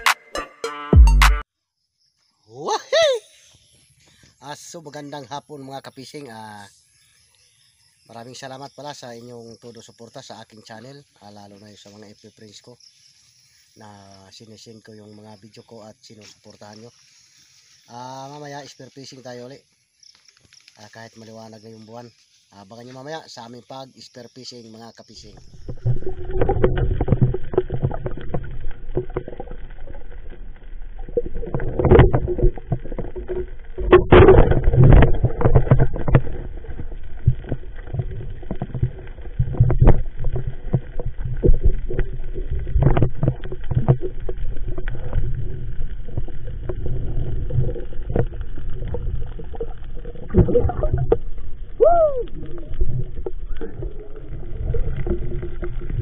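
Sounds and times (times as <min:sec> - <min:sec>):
underwater rumble of moving water: 0:25.2 - 0:56.0
underwater clicks and knocks: 0:25.3 - 0:56.0.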